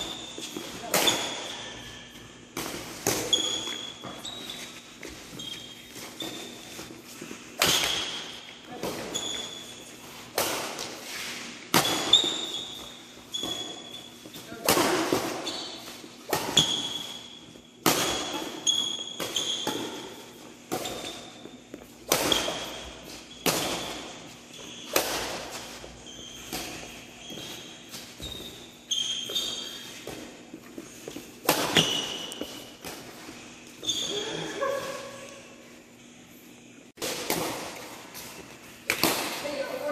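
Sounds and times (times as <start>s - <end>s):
shoe squeaks on court: 0.0s - 2.4s, 3.1s - 7.0s, 7.6s - 10.2s, 11.1s - 14.6s, 15.3s - 31.1s, 31.7s - 32.8s, 33.4s - 34.6s.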